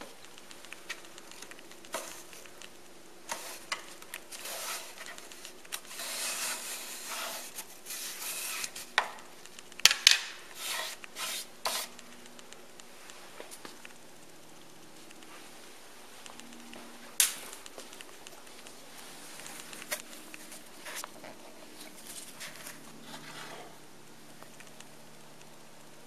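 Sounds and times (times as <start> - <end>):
grille rubbing and scraping: 3.3 - 9.0.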